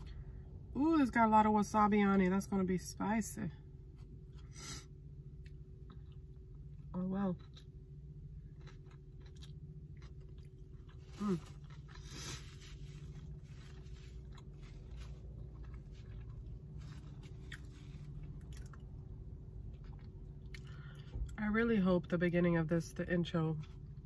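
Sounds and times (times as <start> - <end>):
low hum: 0.0 - 24.0
person chewing wetly: 5.3 - 21.3.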